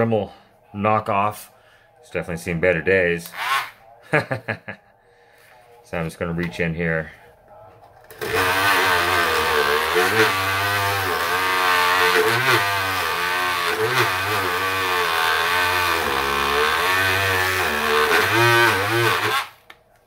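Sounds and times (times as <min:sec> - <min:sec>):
rotary tool wire brushing: 0:08.1 - 0:19.6.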